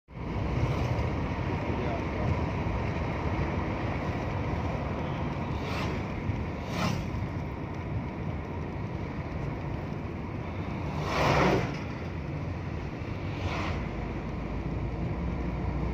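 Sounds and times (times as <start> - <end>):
vehicle road and engine rumble: 0.1 - 15.9
passing whooshes: 5.4 - 7.4, 10.8 - 12.0, 12.7 - 14.3.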